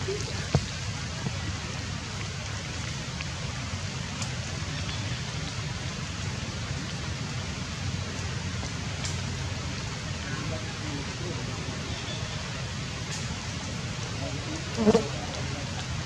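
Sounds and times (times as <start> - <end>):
light rain falling: 0.0 - 16.0
raindrop ticks: 2.0 - 7.1, 8.0 - 16.0.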